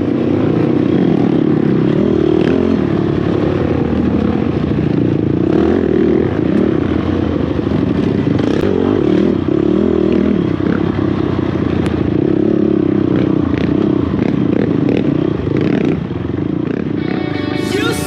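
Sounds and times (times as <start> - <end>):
quad engine running hard: 0.0 - 18.0.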